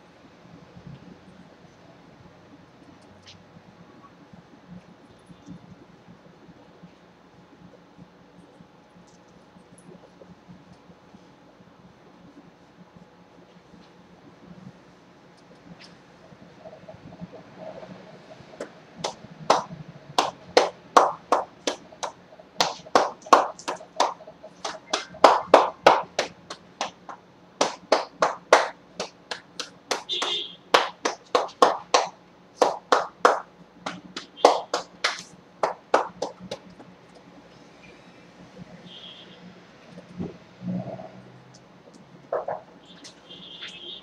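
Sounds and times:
hands slapping a back: 0:18.6 - 0:36.7.

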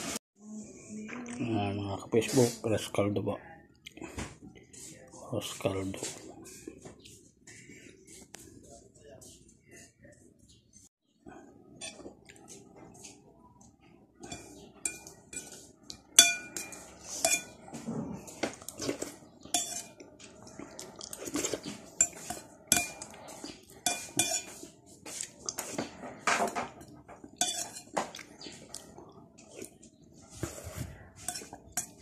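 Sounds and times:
metal spoon clinking on ceramic bowl: 0:14.3 - 0:17.6, 0:19.6 - 0:19.9, 0:22.0 - 0:23.2, 0:23.9 - 0:24.6, 0:27.4 - 0:27.9.

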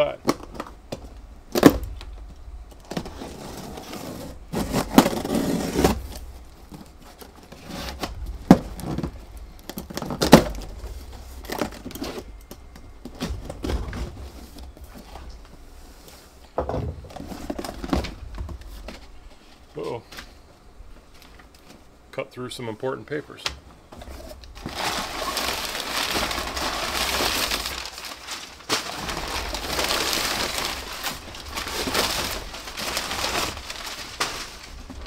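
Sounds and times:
cardboard scraping and rustling: 0:02.9 - 0:09.2, 0:23.9 - 0:35.0
plastic straps snapping: 0:24.4 - 0:35.0.

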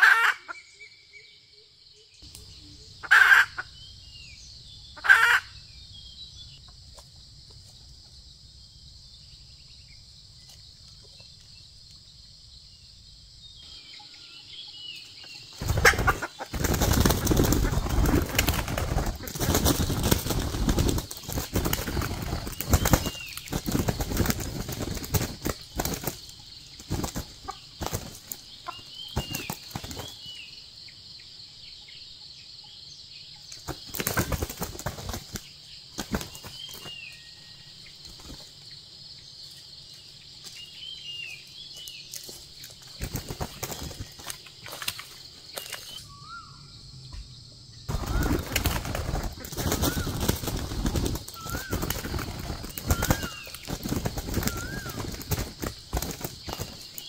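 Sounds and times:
faint chirps: 0:00.0 - 0:57.0
rooster flapping wings: 0:15.6 - 0:28.4, 0:29.1 - 0:30.2, 0:33.7 - 0:37.0, 0:43.0 - 0:45.8, 0:47.9 - 0:57.0.

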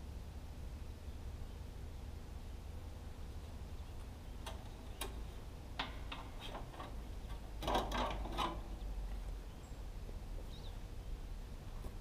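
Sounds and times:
light metallic clicks and clanks: 0:04.0 - 0:09.4.

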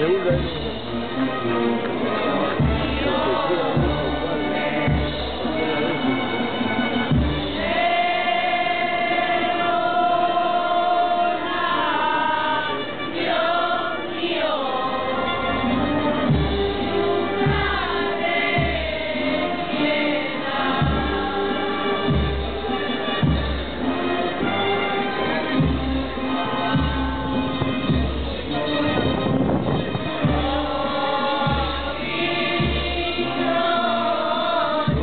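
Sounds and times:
voices singing a hymn: 0:00.0 - 0:35.0
bass drum beating: 0:02.6 - 0:05.8, 0:16.3 - 0:24.6, 0:25.6 - 0:33.8, 0:34.8 - 0:35.0.

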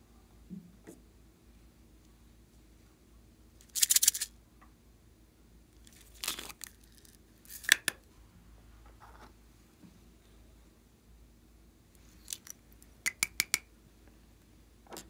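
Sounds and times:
sprinkles rattling in plastic container: 0:03.6 - 0:04.3.

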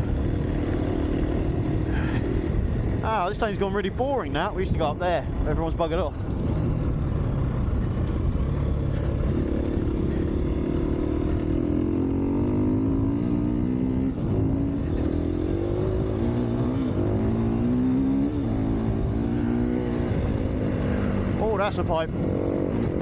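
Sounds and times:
dirt bike engine revving: 0:00.0 - 0:03.0, 0:07.8 - 0:23.0.

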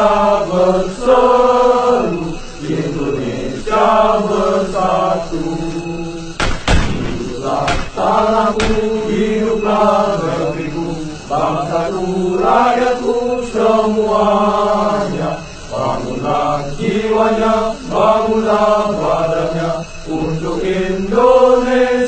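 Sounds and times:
slow chanted vocal music: 0:00.0 - 0:22.0
sharp cracks: 0:06.4 - 0:08.0, 0:08.6 - 0:08.9.

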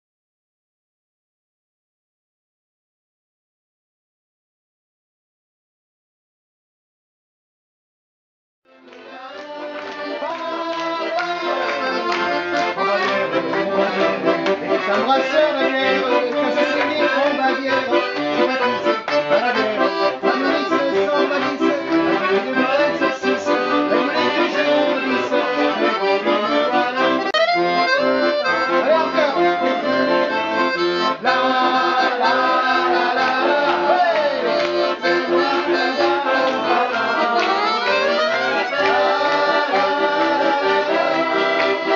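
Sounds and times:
accordions playing a tune: 0:08.7 - 0:41.9.

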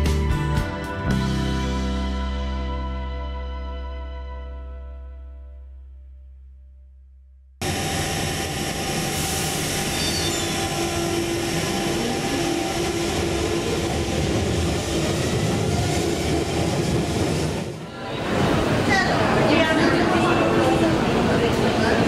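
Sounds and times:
train wheels rumbling on rail: 0:07.6 - 0:22.0
train whine: 0:07.6 - 0:22.0.

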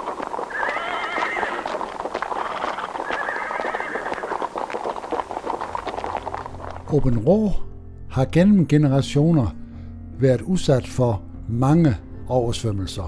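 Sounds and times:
horse hooves clip-clopping: 0:00.0 - 0:07.6
horse neighing: 0:00.5 - 0:04.6.

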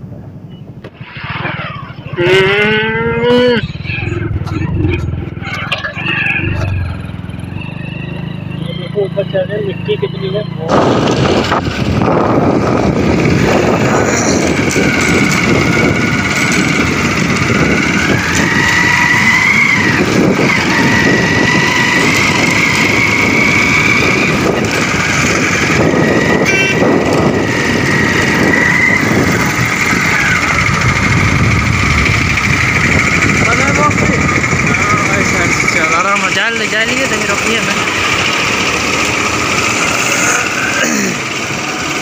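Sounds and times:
motorcycle engine running: 0:01.0 - 0:42.0
wind rushing over microphone: 0:10.6 - 0:35.8.

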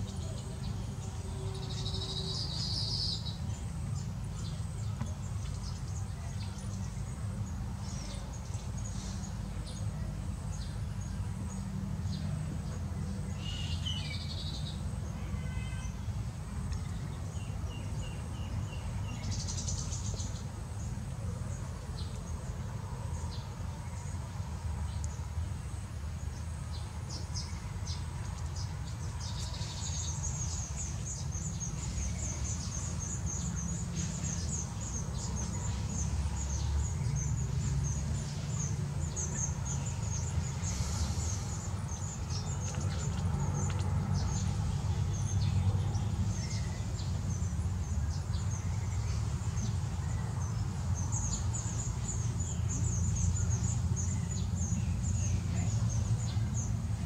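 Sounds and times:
birds chirping: 0:27.1 - 0:57.0.

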